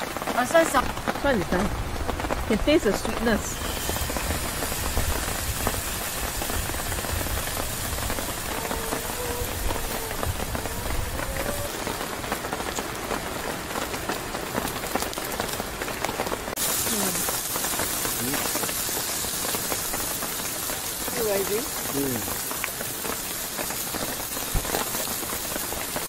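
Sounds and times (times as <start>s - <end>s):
rain pattering on tent: 0.0s - 26.0s
steak sizzling in a frying pan: 2.7s - 11.7s, 16.6s - 26.0s.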